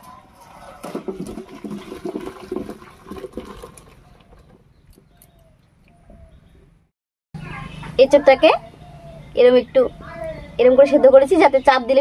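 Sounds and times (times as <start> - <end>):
water splashing into colander: 0.7 - 4.6.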